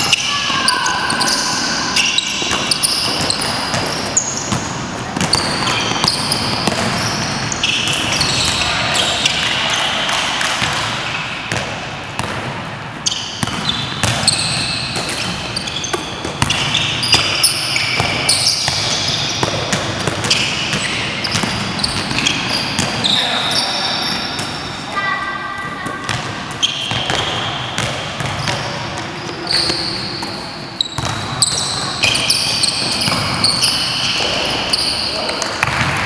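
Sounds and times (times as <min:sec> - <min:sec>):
sneakers squeaking: 0:00.0 - 0:36.0
basketball bouncing: 0:02.0 - 0:23.1, 0:25.8 - 0:29.1, 0:30.9 - 0:34.6, 0:35.4 - 0:36.0.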